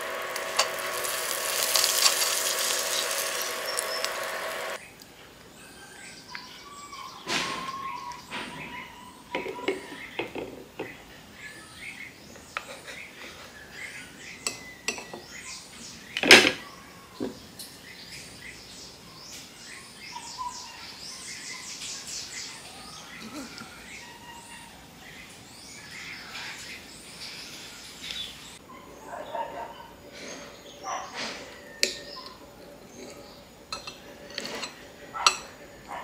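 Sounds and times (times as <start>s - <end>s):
birds chirping: 0.0s - 36.0s
utensils clinking on ceramic bowl: 33.0s - 35.6s.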